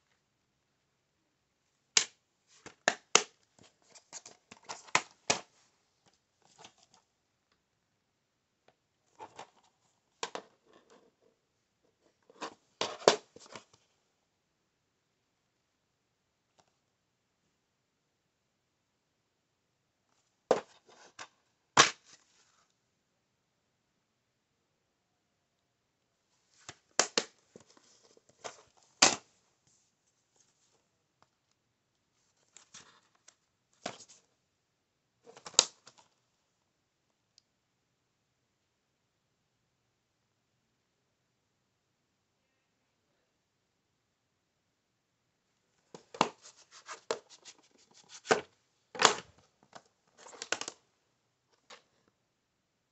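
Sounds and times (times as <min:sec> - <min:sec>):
plastic cases clicking and rustling: 0:48.1 - 0:50.8.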